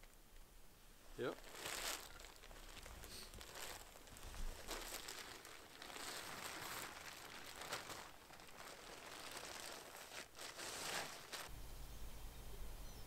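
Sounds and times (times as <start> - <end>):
foil blanket crinkling: 1.2 - 11.5.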